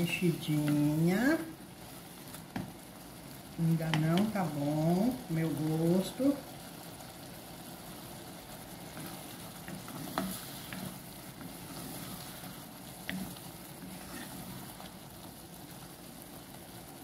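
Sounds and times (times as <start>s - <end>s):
sauce sizzling in a pot: 0.0s - 17.0s
wooden spoon stirring: 0.0s - 17.0s.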